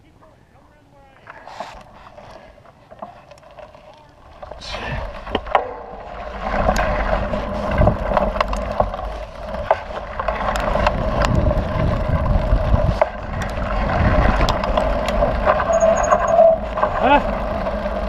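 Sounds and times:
bike tyres rolling on dirt: 0.0s - 18.0s
bike clicks and rattles: 1.1s - 18.0s
wind rushing over microphone: 6.0s - 18.0s.

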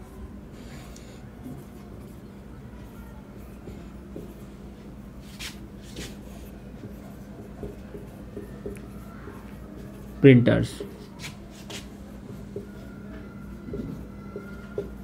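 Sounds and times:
marker pen writing on whiteboard: 3.4s - 15.0s.

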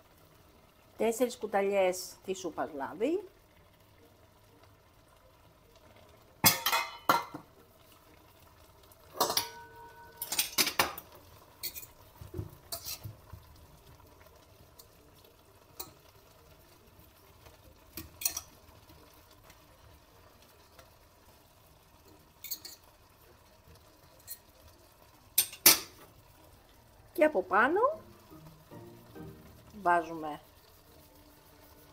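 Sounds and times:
cutlery clinking on plate: 6.4s - 7.4s, 9.2s - 11.0s, 11.6s - 12.0s, 12.7s - 13.0s, 22.4s - 22.9s
kitchenware clinking: 6.4s - 7.5s, 9.1s - 12.0s, 12.6s - 13.1s, 18.0s - 18.5s, 22.1s - 22.9s, 25.4s - 26.1s.

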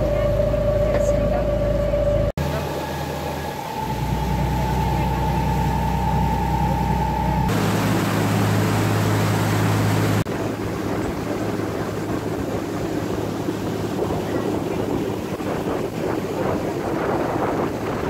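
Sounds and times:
boat engine drone with whine: 0.0s - 18.0s
water rushing in wake: 2.2s - 18.0s
wind on microphone: 3.6s - 18.0s.

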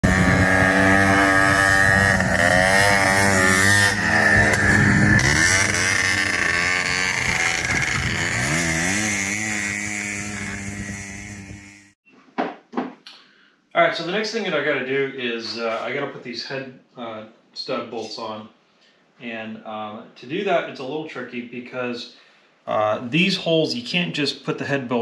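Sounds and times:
dune buggy engines revving: 0.0s - 12.0s.

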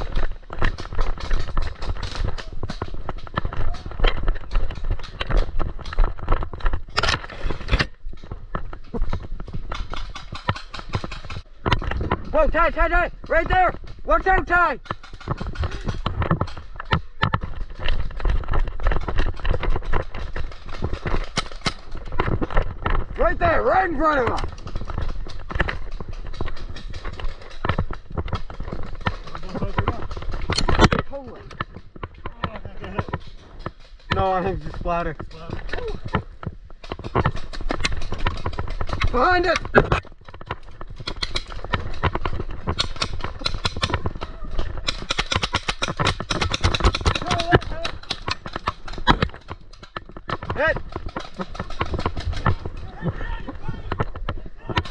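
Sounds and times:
gear rattling: 0.0s - 54.9s
running footsteps: 0.0s - 54.9s
sharp cracks: 0.0s - 54.9s
paintball gun firing: 41.0s - 49.9s.

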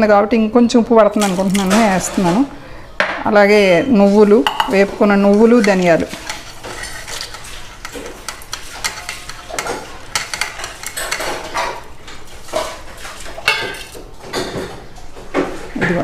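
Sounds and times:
spoon clinking on metal: 5.4s - 11.7s, 13.4s - 14.0s.

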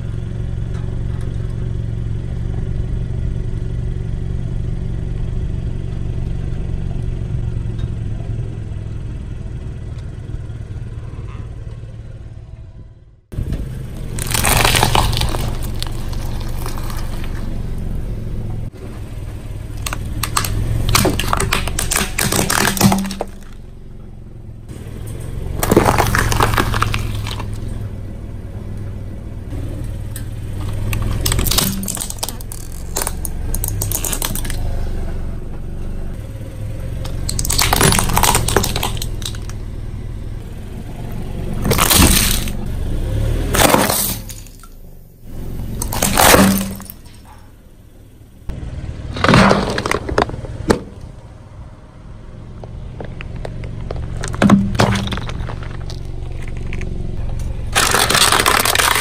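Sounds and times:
low steady hum: 0.0s - 59.0s
objects cracking and bursting: 13.9s - 17.9s, 19.7s - 23.6s, 25.5s - 27.8s, 30.6s - 34.8s, 37.0s - 39.6s, 41.6s - 42.6s, 43.5s - 44.8s, 45.5s - 47.4s, 49.1s - 51.1s, 53.0s - 59.0s.

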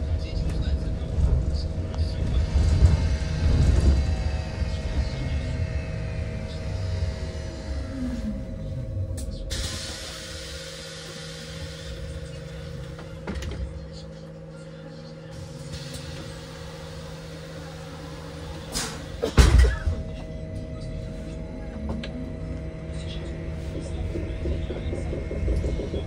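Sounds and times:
electrical equipment hum: 0.1s - 26.0s.

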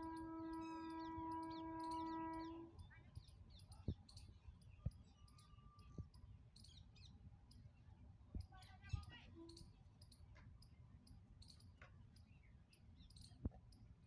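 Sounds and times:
horn-like tone: 0.0s - 2.7s
small birds chirping: 0.0s - 14.0s.

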